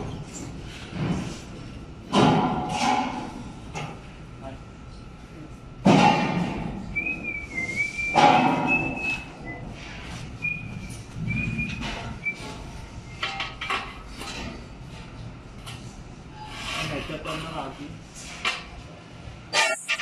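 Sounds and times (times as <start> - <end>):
person whistling a tune: 7.0 - 9.6
scrapes: 16.3 - 18.6.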